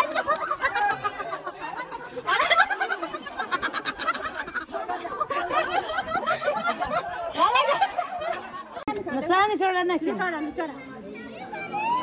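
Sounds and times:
people laughing: 0.0 - 9.3
group of people talking: 0.0 - 12.0.

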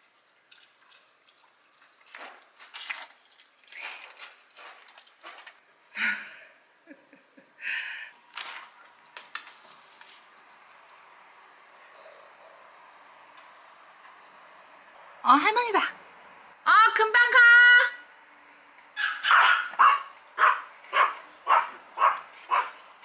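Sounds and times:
dogs crunching food: 2.0 - 5.6.

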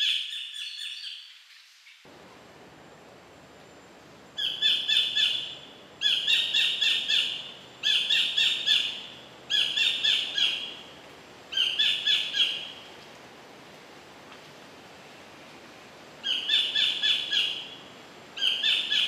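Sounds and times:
kingfisher calling: 4.4 - 10.8, 11.5 - 12.8, 16.2 - 17.8.

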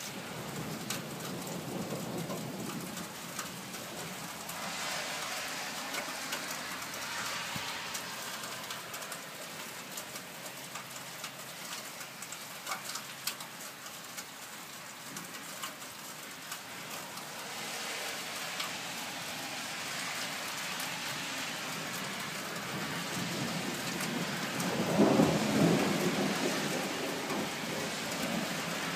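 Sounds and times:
rain falling: 0.0 - 28.9
thunder rumble: 0.3 - 7.6, 22.6 - 28.9.

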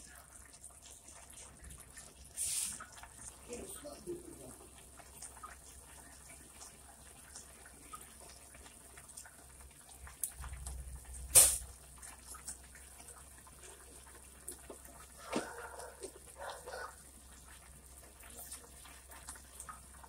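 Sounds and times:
sauce simmering in a pot: 0.0 - 20.0
liquid poured from a bottle: 1.3 - 3.4, 10.3 - 12.6.

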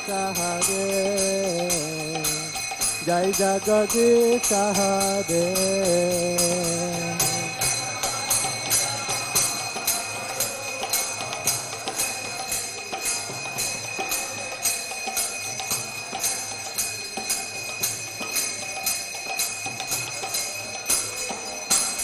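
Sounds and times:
person singing: 0.0 - 9.7
hand cymbals striking: 0.0 - 22.0
ringing bell: 0.0 - 22.0.

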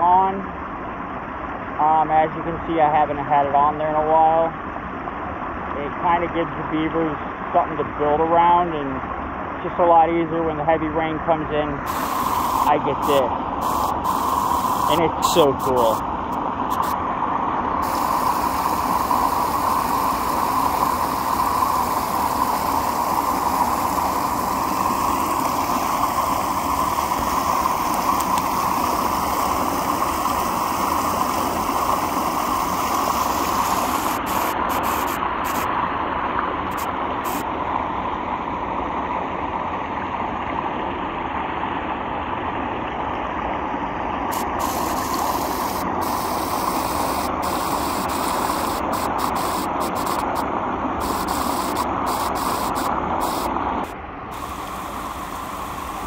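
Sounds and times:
water pouring into drain pipe: 17.8 - 35.8, 44.3 - 54.7.

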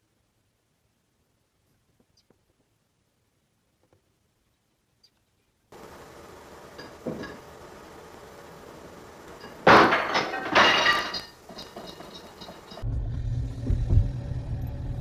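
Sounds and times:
steady recording hiss: 0.0 - 15.0
dishes clattering: 6.8 - 7.5, 9.4 - 12.8.

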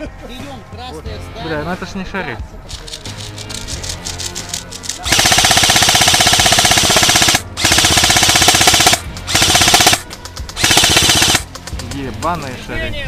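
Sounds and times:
airsoft rifle firing bursts: 5.0 - 11.9.

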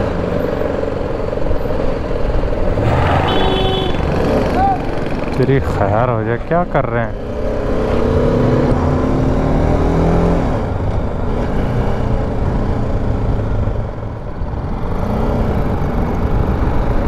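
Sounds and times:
motorcycle engine accelerating: 0.0 - 6.0
wind and road noise: 0.0 - 17.0.

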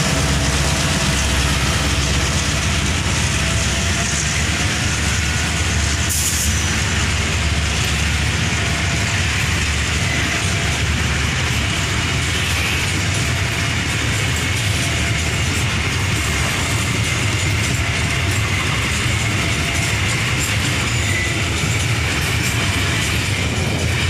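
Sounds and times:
train wheels rumbling on track: 0.0 - 24.0.

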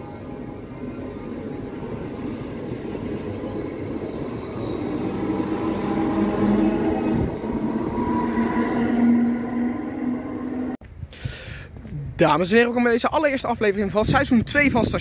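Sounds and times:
train wheels and carriages rumbling: 0.0 - 10.8.

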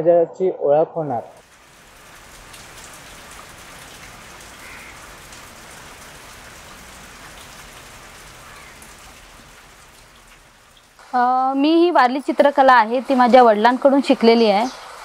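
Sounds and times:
steady rain falling: 1.4 - 15.0.

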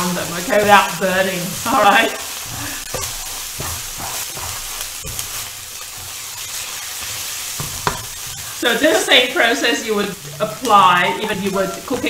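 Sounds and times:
onions sizzling in hot oil: 0.0 - 12.0
utensil clicking and scraping pan: 1.7 - 8.6.

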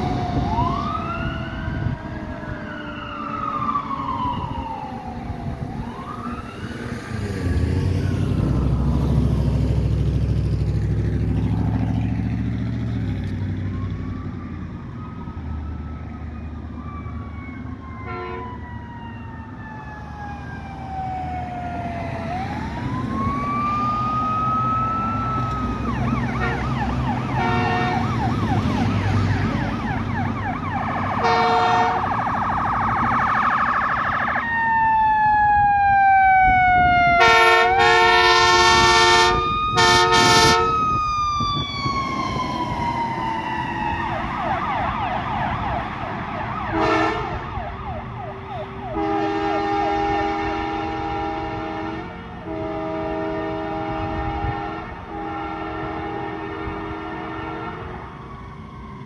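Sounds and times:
diesel engine rumble: 0.0 - 18.0, 18.8 - 59.0
sirens wailing and yelping: 0.0 - 59.0
horn blasts: 18.0 - 18.6, 26.4 - 26.8, 27.4 - 28.2, 31.2 - 32.2, 37.2 - 40.8, 46.7 - 47.5, 48.9 - 58.0.

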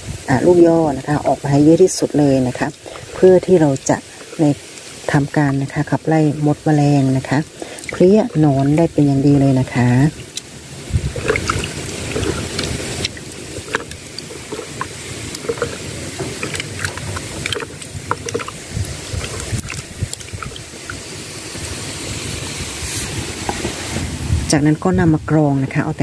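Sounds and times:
hands squelching fruit in water: 0.9 - 21.6.

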